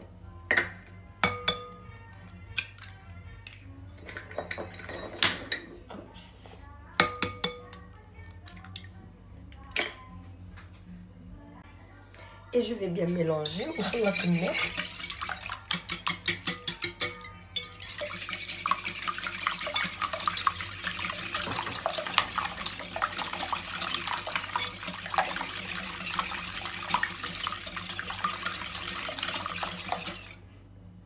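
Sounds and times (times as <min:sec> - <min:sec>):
wire whisk beating eggs in bowl: 0:13.4 - 0:30.4.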